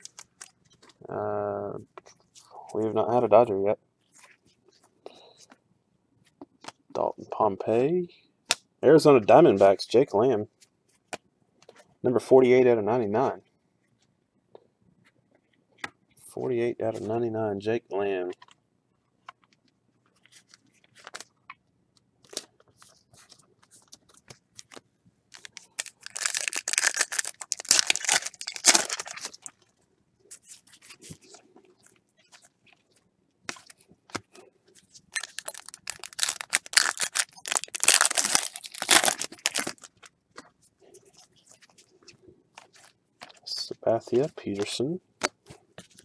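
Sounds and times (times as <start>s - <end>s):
foil wrapper tearing and crinkling: 25.3s - 29.5s, 35.1s - 40.1s.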